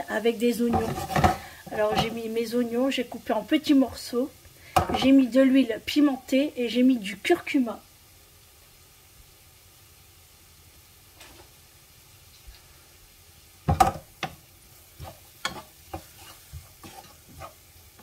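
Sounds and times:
onions sizzling in oil: 0:00.0 - 0:18.0
utensil scraping a pan: 0:00.6 - 0:02.3, 0:11.1 - 0:11.6, 0:13.7 - 0:18.0.

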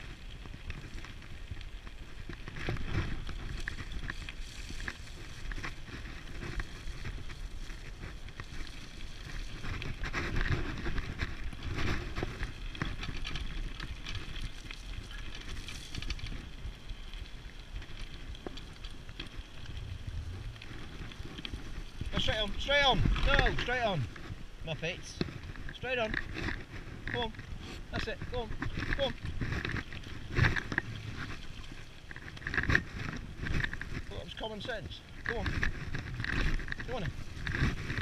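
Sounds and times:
tyres rumbling on dirt: 0:19.4 - 0:38.0.

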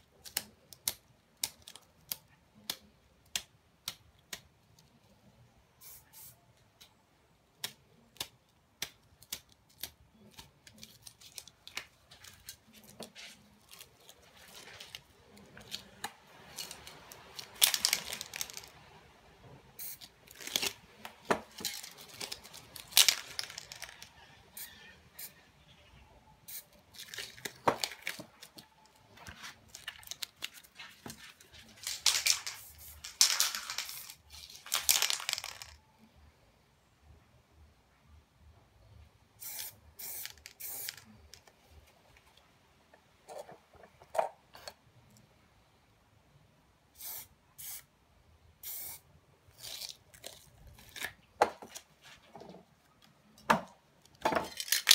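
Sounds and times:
spray paint can hissing: 0:05.8 - 0:06.4, 0:19.8 - 0:20.1, 0:32.2 - 0:34.2, 0:39.4 - 0:41.0, 0:47.0 - 0:47.9, 0:48.6 - 0:49.0.

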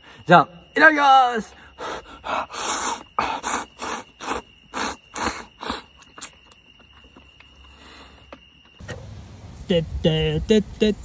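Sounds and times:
person slurping noodles: 0:02.6 - 0:06.0
faint mouth clicks: 0:02.7 - 0:08.4.

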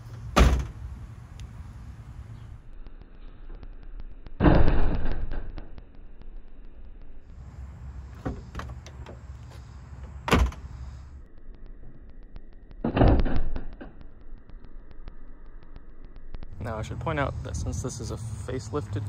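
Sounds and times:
car door slamming: 0:00.4 - 0:00.8, 0:10.2 - 0:10.7.

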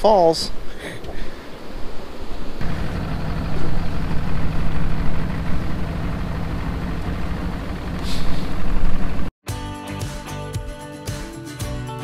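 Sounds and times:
outboard motor running: 0:02.6 - 0:09.3.

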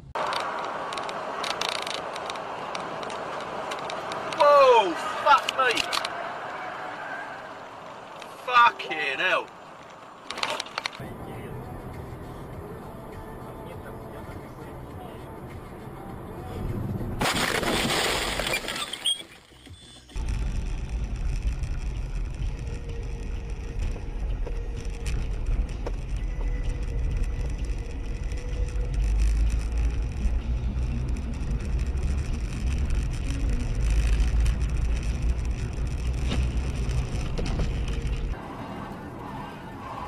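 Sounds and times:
car engine and road rumble: 0:00.0 - 0:40.0
faint clicks: 0:00.2 - 0:04.4.

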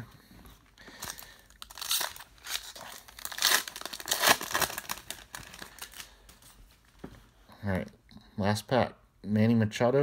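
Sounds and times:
foil wrapper crinkling and tearing: 0:01.0 - 0:06.4.

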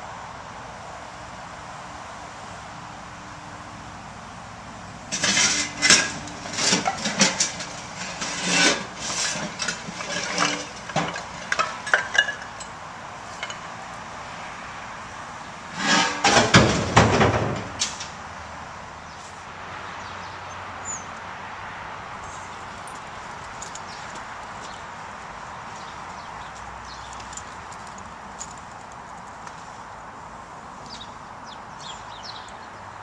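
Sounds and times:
steady outdoor hiss: 0:00.0 - 0:33.0
metallic clanks and knocks: 0:05.1 - 0:12.8, 0:15.7 - 0:18.1.

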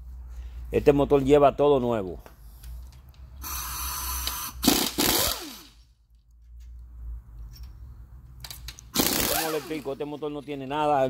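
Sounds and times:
pneumatic impact gun bursts: 0:03.4 - 0:05.8, 0:08.8 - 0:10.0.

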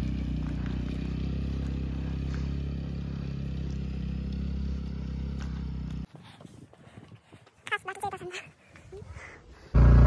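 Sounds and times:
scooter engine humming: 0:00.0 - 0:06.1, 0:09.7 - 0:10.0.

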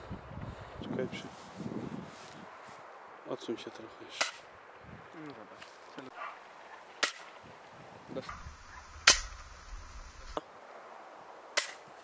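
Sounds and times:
air rifle shots: 0:09.0 - 0:09.5.

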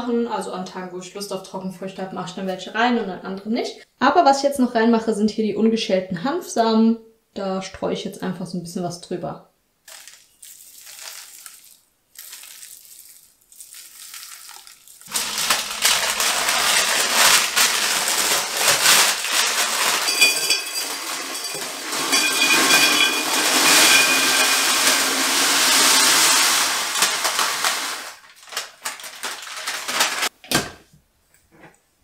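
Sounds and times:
granola rattling into glass jar: 0:09.9 - 0:30.3
baking paper rustling: 0:09.9 - 0:30.4.

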